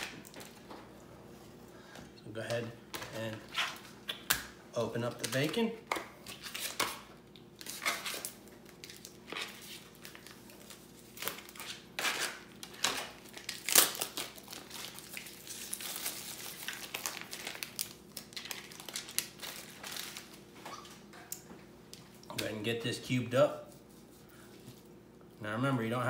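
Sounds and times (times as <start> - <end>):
plastic wrapping crinkling: 5.0 - 21.1.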